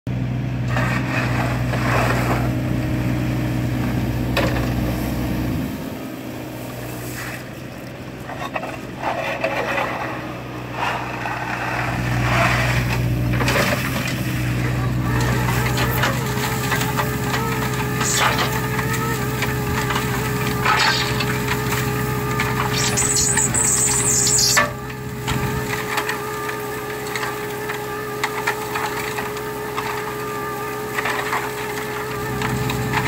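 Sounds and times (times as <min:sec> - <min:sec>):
diesel engine running: 0:00.1 - 0:33.0
wavering whine: 0:14.8 - 0:26.0.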